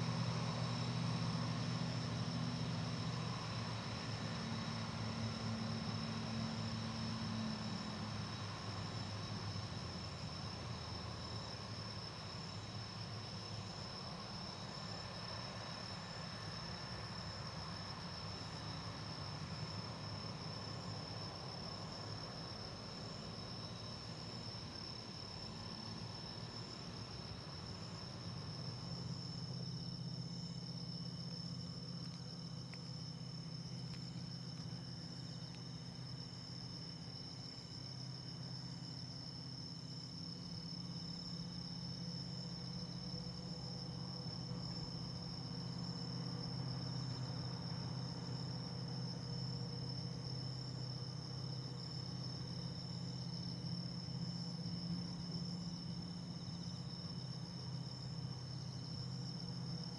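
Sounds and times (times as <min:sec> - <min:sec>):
night insects trilling: 0:00.0 - 0:59.9.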